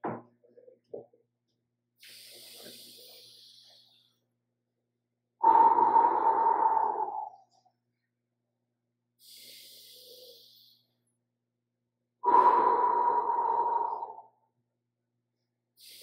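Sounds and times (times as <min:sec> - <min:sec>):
man breathing deeply: 0:05.4 - 0:07.4, 0:12.2 - 0:14.3.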